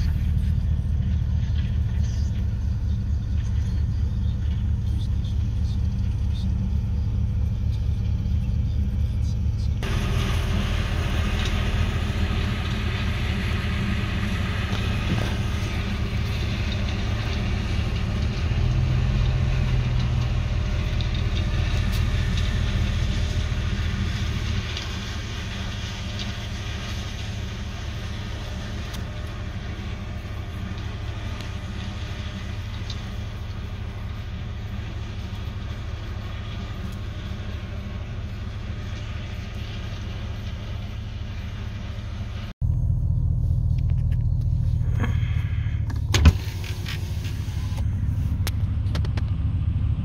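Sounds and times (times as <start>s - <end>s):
combine harvester engine rumbling: 0.0s - 50.0s.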